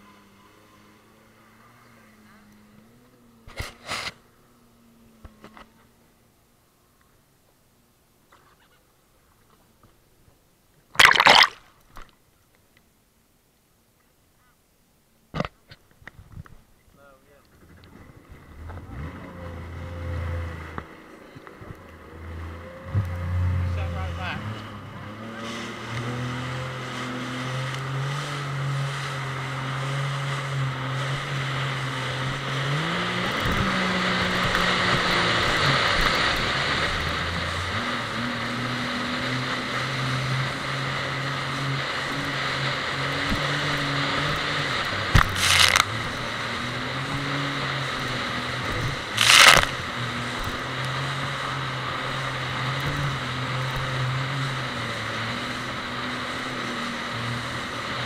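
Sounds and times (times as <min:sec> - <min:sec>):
jet ski engine running: 0:00.0 - 0:10.2, 0:16.6 - 0:58.0
rushing water and spray: 0:11.0 - 0:11.6, 0:22.2 - 0:58.0
loud splashes: 0:11.0 - 0:11.7, 0:43.2 - 0:50.8.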